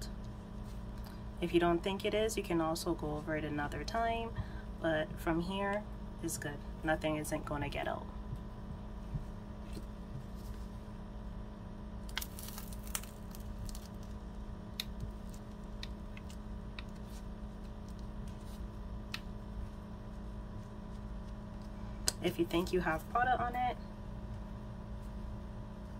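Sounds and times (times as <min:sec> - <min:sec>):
steady low hum: 0:00.0 - 0:25.9
foil sachets crinkling: 0:12.1 - 0:14.4.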